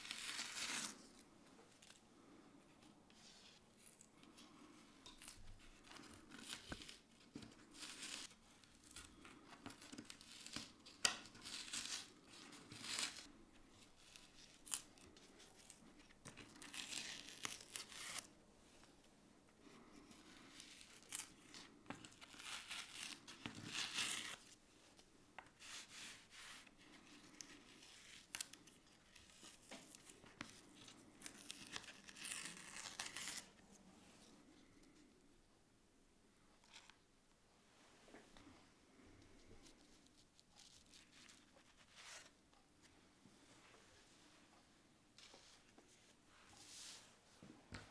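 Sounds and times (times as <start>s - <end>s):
paper fibres tearing: 0.0s - 1.1s, 9.7s - 13.3s, 14.0s - 18.3s, 20.4s - 24.6s, 25.6s - 33.6s.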